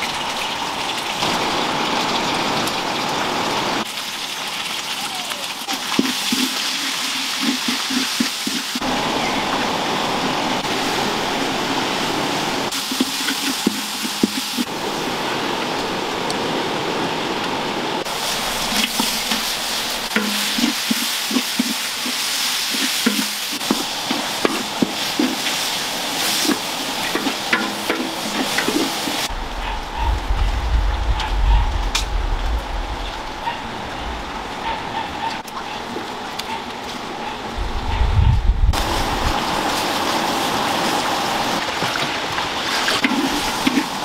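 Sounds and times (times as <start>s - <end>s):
paste sizzling in hot oil: 5.6s - 8.8s, 12.7s - 14.7s, 18.1s - 29.3s, 42.8s - 44.0s
spatula scraping a wok: 6.0s - 8.8s, 12.7s - 14.7s, 18.7s - 29.3s
low rumble: 29.3s - 34.8s, 37.6s - 39.4s.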